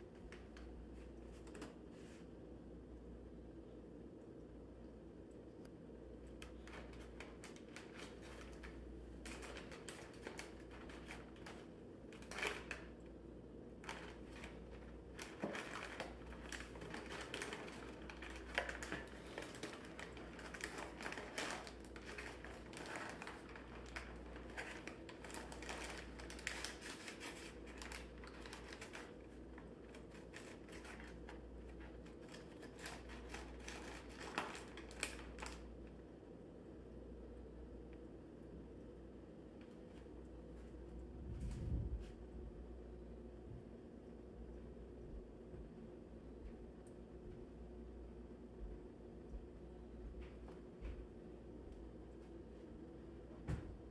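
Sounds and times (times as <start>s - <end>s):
low steady hum: 0.0s - 53.9s
cardboard and paper crinkling: 6.4s - 12.9s, 13.8s - 35.7s.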